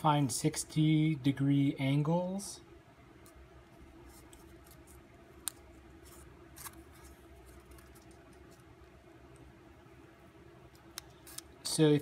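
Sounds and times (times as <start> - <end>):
low steady hum: 0.0 - 12.0
paper crinkling: 6.0 - 8.7.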